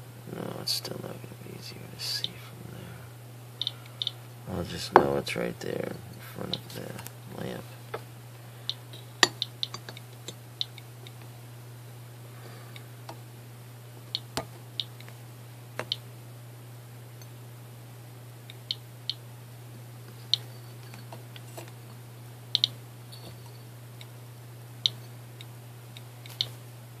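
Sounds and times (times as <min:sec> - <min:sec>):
steady low hum: 0:00.0 - 0:27.0
geiger counter clicking: 0:22.5 - 0:22.8.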